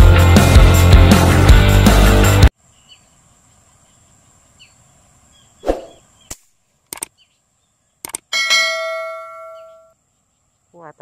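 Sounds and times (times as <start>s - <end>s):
faint bird chirps: 2.6s - 8.3s, 9.4s - 11.0s
bell ding: 8.4s - 9.9s.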